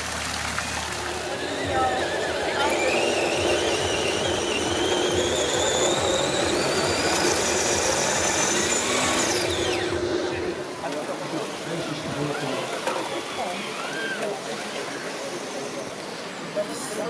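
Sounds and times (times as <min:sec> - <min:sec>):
electric motor and gearbox whining: 0:00.8 - 0:16.2.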